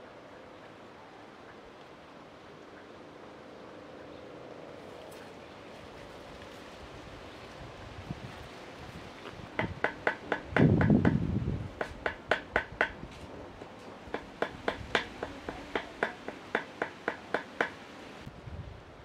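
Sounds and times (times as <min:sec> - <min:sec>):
knocks on a hard surface: 0:09.6 - 0:11.2.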